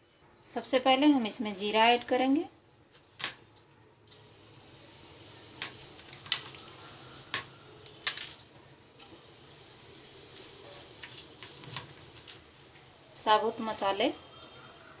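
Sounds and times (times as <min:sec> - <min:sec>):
seeds sizzling in oil: 0:00.4 - 0:15.0
oil popping and crackling: 0:04.0 - 0:13.4.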